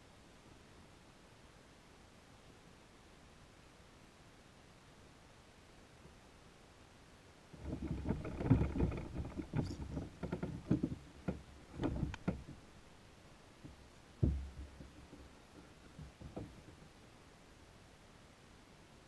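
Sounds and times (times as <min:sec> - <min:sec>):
knocks on plastic kayak hull: 0:13.7 - 0:16.8.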